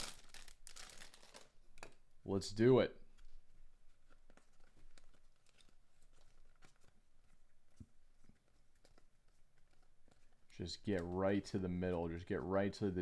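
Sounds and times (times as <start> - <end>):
paper cards being flipped: 3.2 - 11.3.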